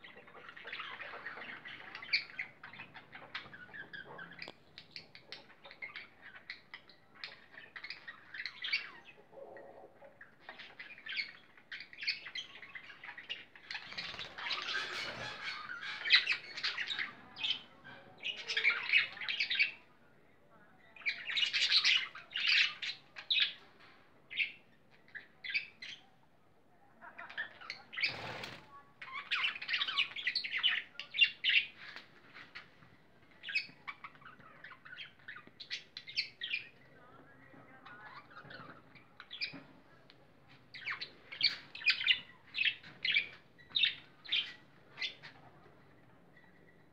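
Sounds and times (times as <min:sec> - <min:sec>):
parrots chirping and squawking: 0:00.0 - 0:19.8, 0:27.1 - 0:32.7.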